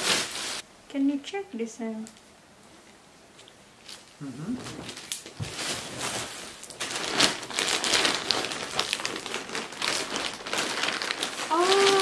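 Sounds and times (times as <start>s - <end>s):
packaging crinkling: 3.8s - 12.0s.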